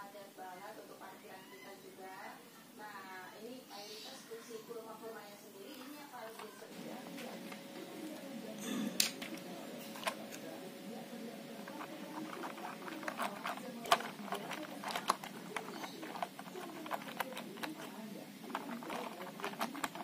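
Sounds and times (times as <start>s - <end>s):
model train cars clicking: 11.6s - 20.0s.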